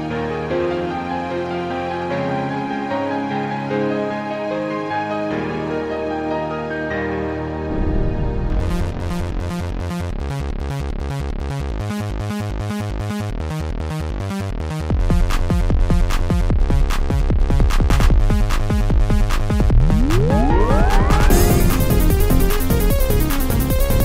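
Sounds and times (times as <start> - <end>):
bass beat: 8.3 - 24.0
fast hi-hat rhythm: 15.0 - 24.0.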